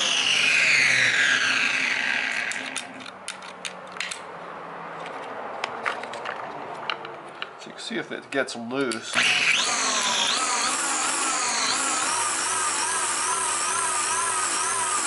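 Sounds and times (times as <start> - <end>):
string trimmer motor winding down: 0.0 - 3.1, 9.1 - 15.0.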